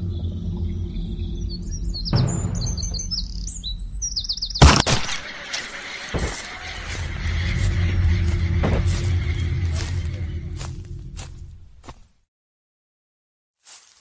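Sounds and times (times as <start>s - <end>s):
steady low rumble: 0.0s - 12.0s
birds chirping: 0.0s - 12.1s.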